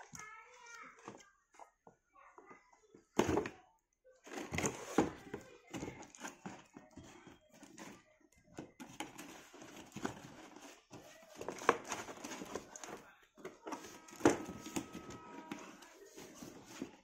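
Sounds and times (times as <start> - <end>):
cardboard rustling and scraping: 4.3 - 17.0.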